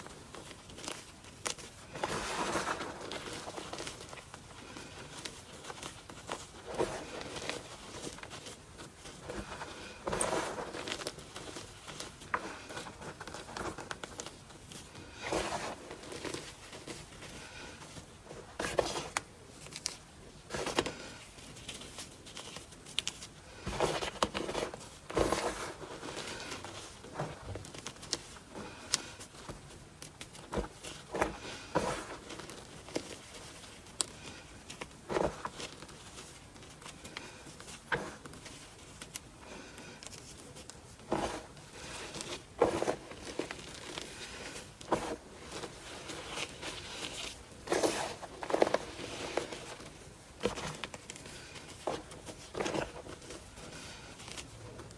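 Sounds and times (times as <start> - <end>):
hands crunching dry powder: 0.0 - 17.8
crumbs falling patter: 0.0 - 54.9.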